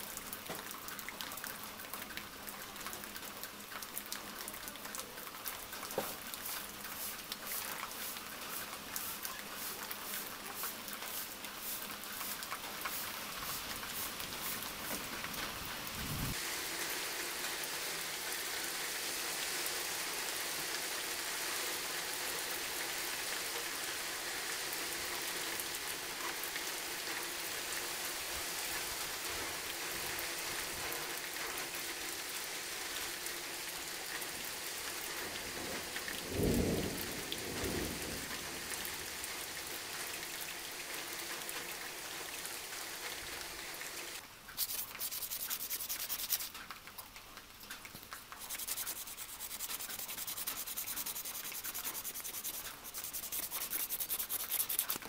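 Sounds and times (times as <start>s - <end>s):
steady hiss: 5.9s - 23.6s, 43.2s - 55.0s
sandpaper rubbing on metal: 44.6s - 46.6s, 48.3s - 55.0s.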